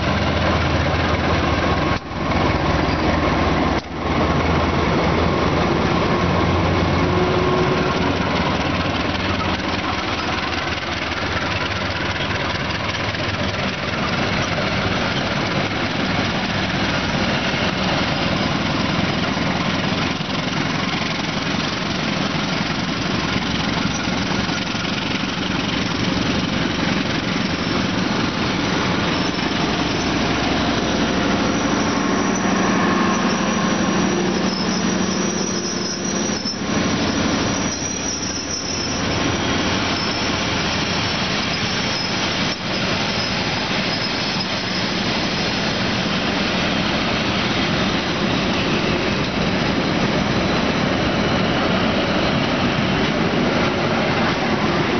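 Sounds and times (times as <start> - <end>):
train wheels rumbling on rails: 0.0 - 54.9
thin wheel squeals: 16.7 - 45.6.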